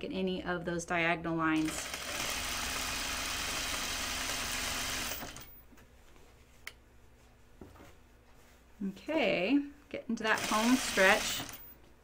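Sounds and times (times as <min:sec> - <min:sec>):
overlock sewing machine running: 0:01.6 - 0:05.6, 0:10.3 - 0:11.7.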